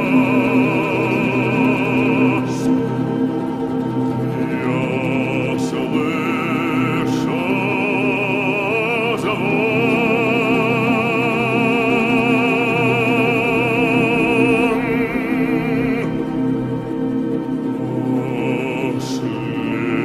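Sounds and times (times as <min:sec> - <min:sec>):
man singing operatic note: 0:00.0 - 0:02.8, 0:04.4 - 0:16.4, 0:17.9 - 0:20.0
low choral drone: 0:00.0 - 0:20.0.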